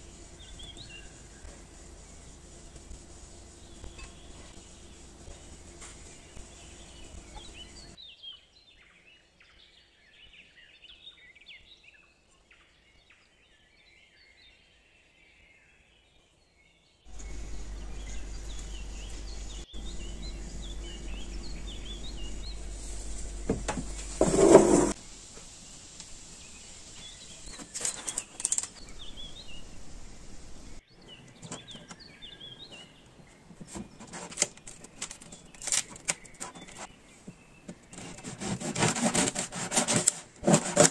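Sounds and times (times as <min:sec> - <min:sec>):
steady low hum: 0:00.0 - 0:08.0, 0:17.1 - 0:27.5, 0:28.8 - 0:30.8
small birds chirping: 0:00.0 - 0:24.2, 0:24.8 - 0:40.9.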